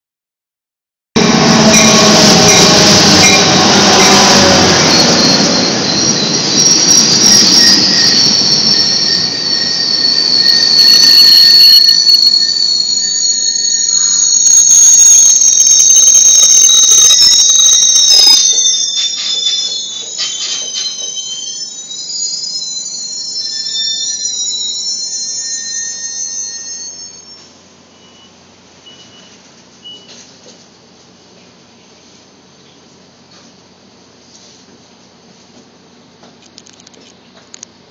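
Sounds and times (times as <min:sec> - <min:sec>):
train rolling rumble: 0:01.2 - 0:14.5, 0:17.1 - 0:24.7
wheel and brake squeals: 0:01.6 - 0:30.4.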